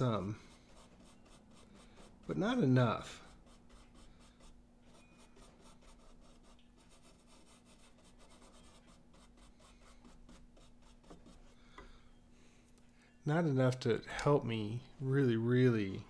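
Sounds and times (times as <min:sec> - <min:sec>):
paintbrush rubbing on paper: 0:00.1 - 0:11.6.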